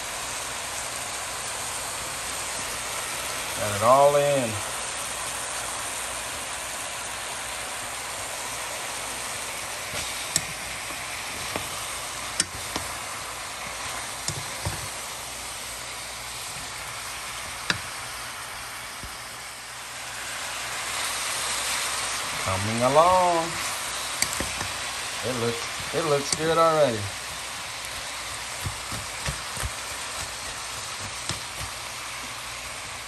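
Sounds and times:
food sizzling in hot pan: 0.0s - 33.0s
wooden spatula knocking pan: 13.8s - 15.0s, 27.2s - 31.8s.

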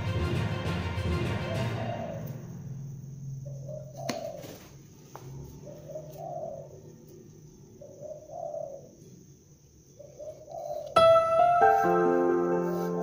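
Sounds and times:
dove cooing: 3.4s - 4.6s, 5.4s - 7.1s, 7.7s - 9.1s, 9.9s - 11.0s.

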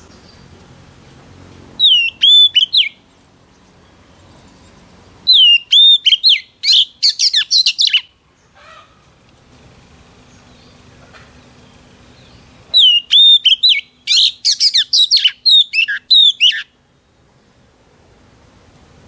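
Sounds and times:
bird singing whistled notes: 1.8s - 8.2s, 12.1s - 16.8s.

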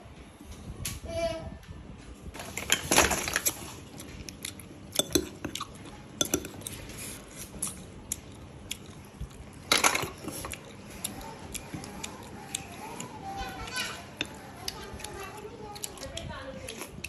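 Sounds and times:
metal spoon clinking on ceramic bowl: 5.0s - 5.6s, 6.2s - 6.6s.

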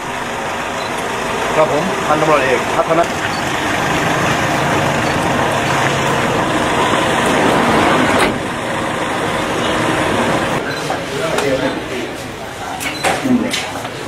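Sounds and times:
vehicle engine running: 0.0s - 10.6s
loud outdoor noise: 0.0s - 14.0s.

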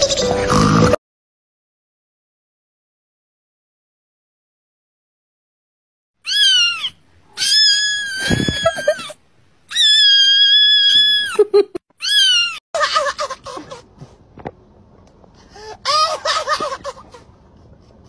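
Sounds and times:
kitten meowing loudly: 6.3s - 9.1s, 9.7s - 11.4s.

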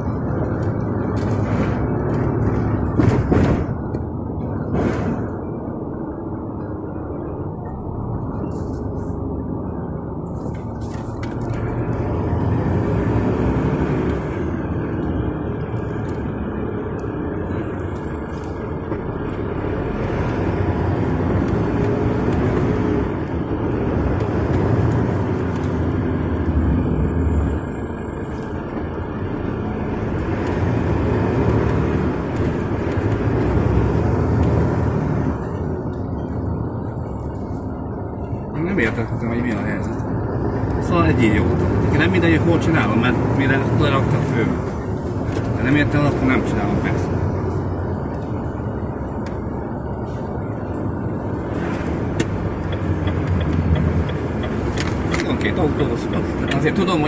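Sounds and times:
car road and engine rumble: 0.0s - 57.0s.

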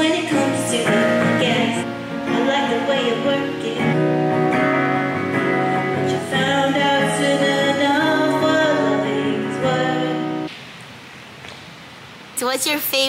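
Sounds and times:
woman singing: 0.0s - 4.5s, 5.9s - 10.5s
acoustic guitar chords: 0.0s - 10.5s.

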